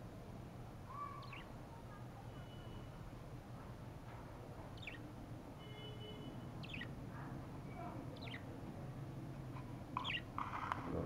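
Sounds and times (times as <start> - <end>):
low steady background hum: 0.0 - 11.0
budgerigars chirping: 1.2 - 1.5, 4.8 - 5.1, 6.5 - 7.0, 8.1 - 8.5, 10.0 - 10.6.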